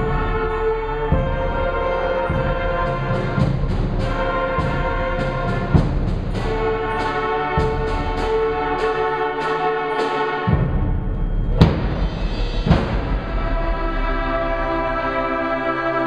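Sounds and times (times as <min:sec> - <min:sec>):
crisp percussion strokes: 0:00.0 - 0:16.0
heavy drum hits: 0:02.3 - 0:06.8, 0:10.5 - 0:14.2.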